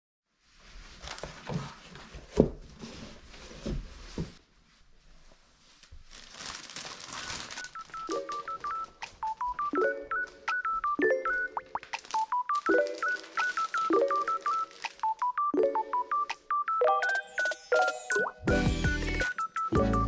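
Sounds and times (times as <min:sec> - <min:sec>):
rustling and handling noise: 0:00.3 - 0:16.3.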